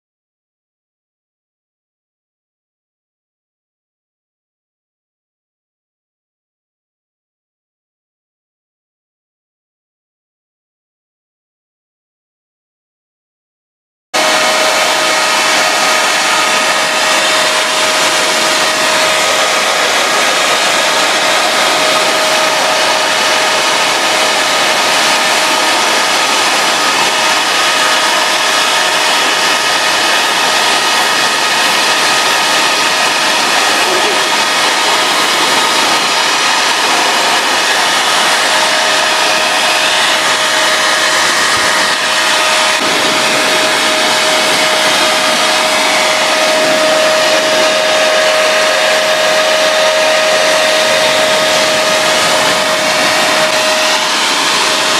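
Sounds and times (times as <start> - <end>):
air blower rushing: 14.2 - 54.9
high whine: 14.2 - 54.9.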